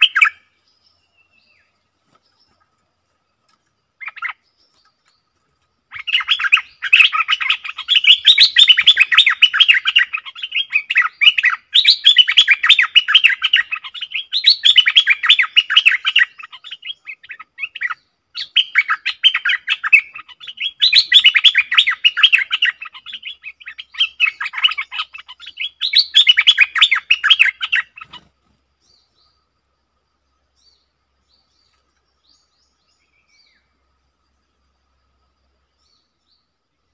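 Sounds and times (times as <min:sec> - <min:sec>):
bird singing chattering notes: 0:00.0 - 0:02.8, 0:03.4 - 0:29.4.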